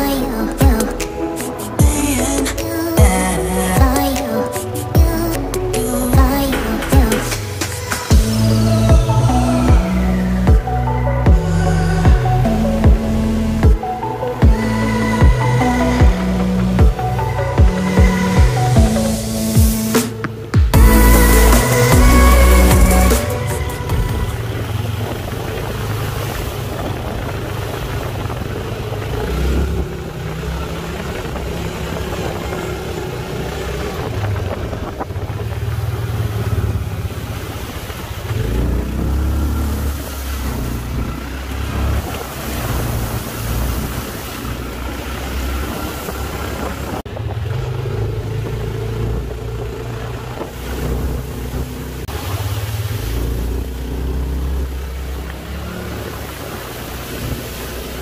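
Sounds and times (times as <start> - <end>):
off-road vehicle engine drone: 0.0 - 58.0
wind buffeting microphone: 20.8 - 58.0.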